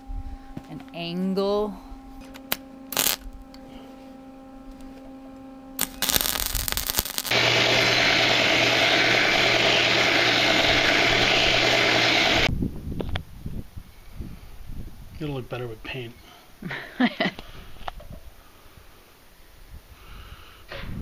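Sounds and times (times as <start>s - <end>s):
arc welding crackle: 2.3s - 3.5s, 5.8s - 12.5s
belt grinder grinding steel: 2.4s - 3.2s, 5.8s - 12.5s.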